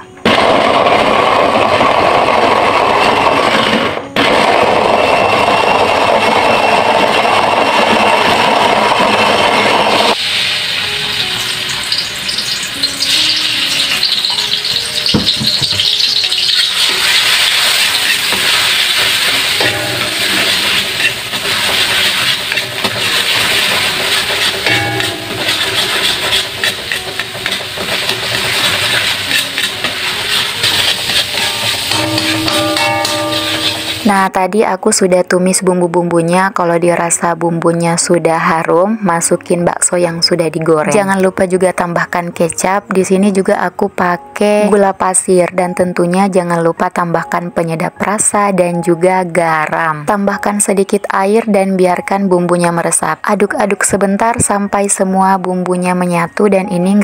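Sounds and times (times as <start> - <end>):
paste sizzling in hot oil: 10.1 - 34.1
wooden spatula stirring in wok: 14.1 - 34.0.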